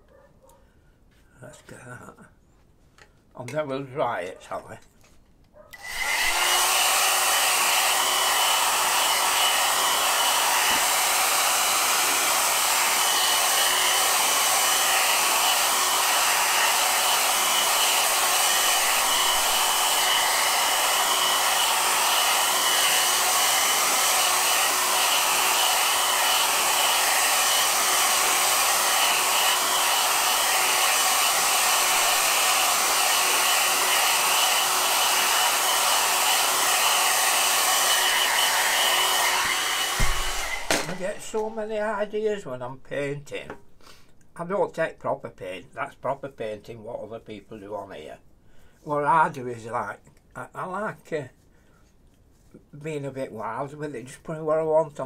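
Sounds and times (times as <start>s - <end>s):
hair dryer blowing: 5.7s - 42.4s.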